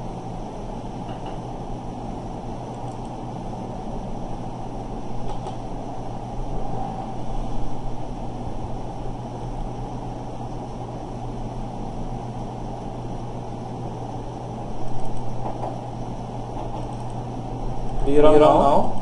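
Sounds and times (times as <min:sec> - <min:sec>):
electrical hum with hiss: 0:00.0 - 0:19.0.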